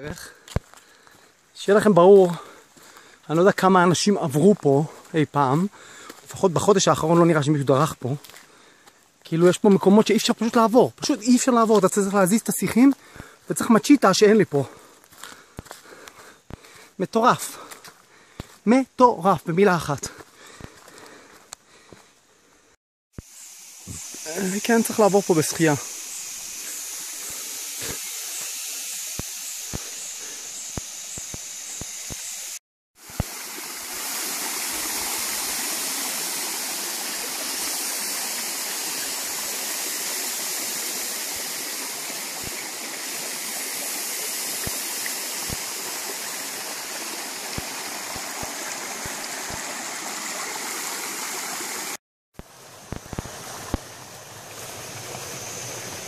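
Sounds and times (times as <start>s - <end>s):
stream water rushing: 23.6s - 30.4s, 31.8s - 56.0s.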